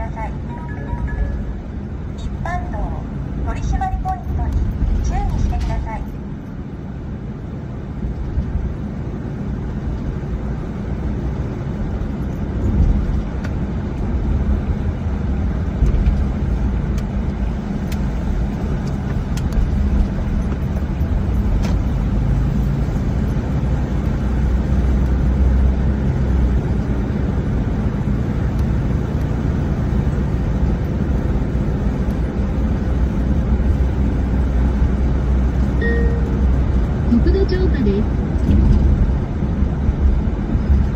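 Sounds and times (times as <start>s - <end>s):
car road noise rumble: 0.0s - 40.9s.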